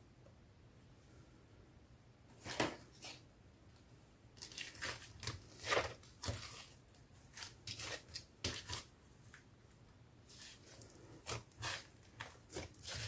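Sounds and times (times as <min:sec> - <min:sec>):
sticky crackly slime squishing: 0:04.4 - 0:08.9, 0:10.4 - 0:13.0.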